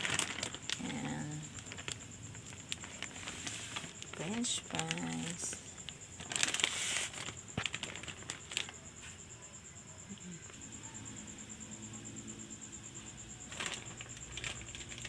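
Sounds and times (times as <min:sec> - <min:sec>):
plastic bag crinkling: 0:00.0 - 0:09.0, 0:13.4 - 0:15.0
faint steady hum: 0:00.0 - 0:15.0.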